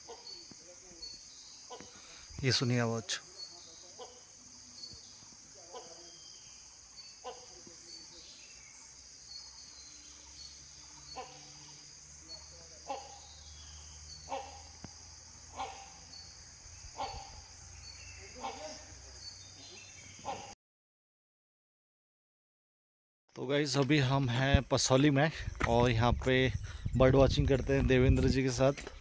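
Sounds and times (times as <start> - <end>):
hornbill calling: 0.0 - 2.3, 3.2 - 20.6
high hiss of insects: 0.0 - 20.6.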